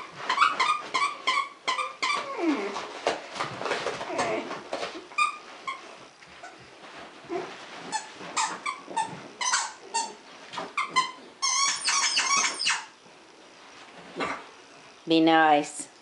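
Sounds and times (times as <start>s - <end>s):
dogs yipping and squealing: 0.0s - 2.7s, 8.0s - 13.0s.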